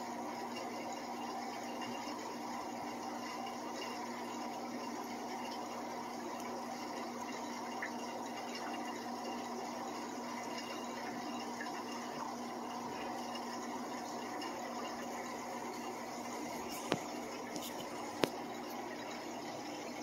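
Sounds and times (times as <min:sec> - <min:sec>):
filter hum: 0:00.0 - 0:20.0.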